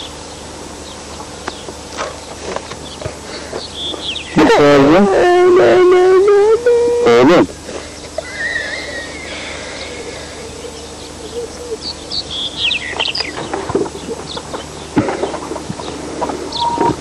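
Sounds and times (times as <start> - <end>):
chickens clucking: 7.8 - 17.0
high short bird chirps: 16.5 - 17.0.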